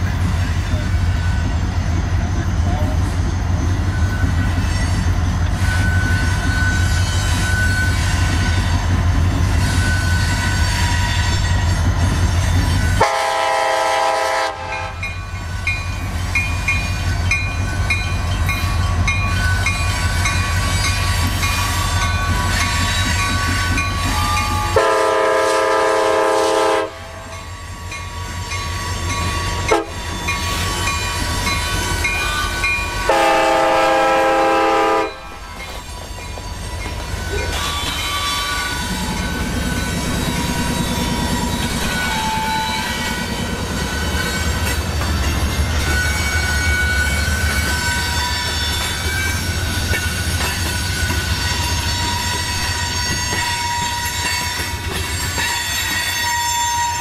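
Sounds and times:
diesel locomotives rumbling: 0.0s - 57.0s
train air horn blasts: 13.0s - 15.1s, 24.5s - 27.3s, 29.7s - 30.0s, 33.0s - 35.4s.

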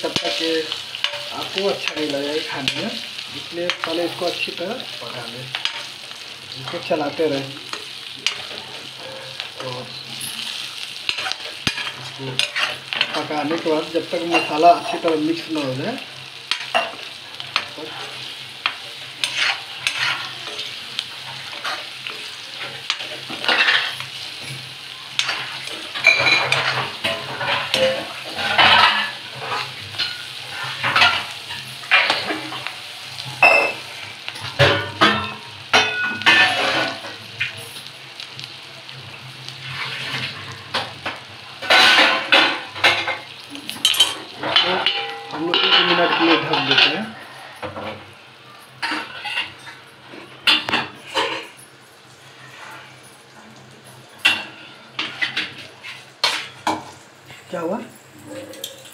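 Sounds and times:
chillies sizzling in oil: 0.0s - 58.9s
spatula scraping metal pan: 6.6s - 15.0s, 17.6s - 24.6s.

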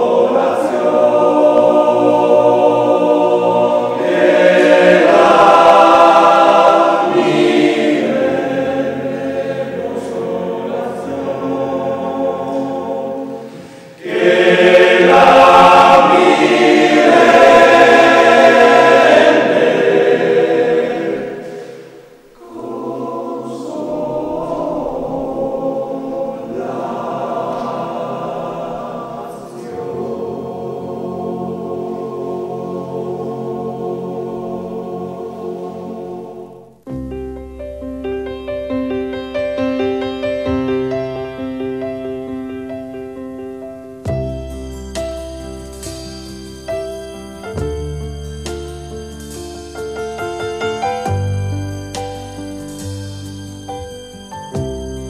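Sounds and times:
choir singing sustained chords: 0.0s - 36.9s.

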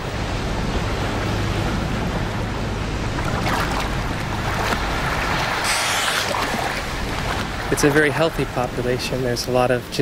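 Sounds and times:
wind: 0.0s - 10.0s
water splashing against boat hull: 2.9s - 8.5s.

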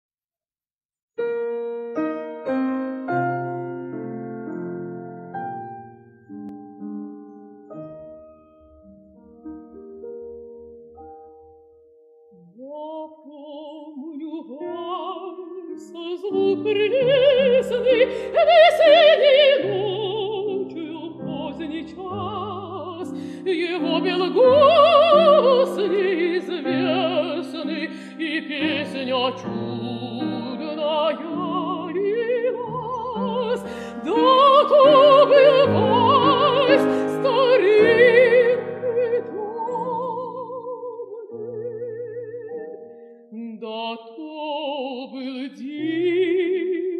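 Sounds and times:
grand piano: 1.2s - 46.9s
woman singing with vibrato: 12.4s - 42.7s, 43.3s - 46.9s.

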